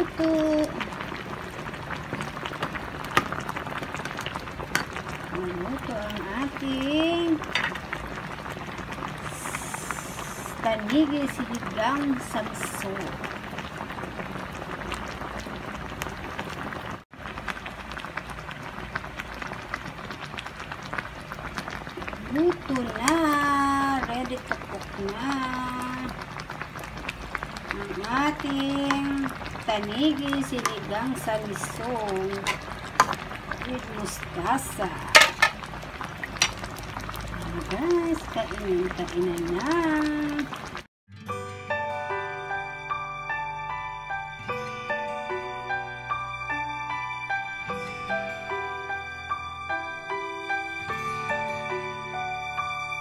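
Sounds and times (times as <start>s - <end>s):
broth boiling and bubbling: 0.0s - 40.9s
soft instrumental music: 41.1s - 53.0s.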